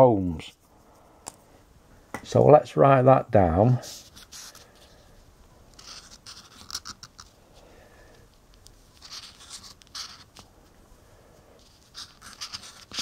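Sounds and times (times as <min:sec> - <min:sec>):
marker writing on paper: 0:03.9 - 0:04.6, 0:05.8 - 0:07.3, 0:09.0 - 0:10.4, 0:11.6 - 0:13.0.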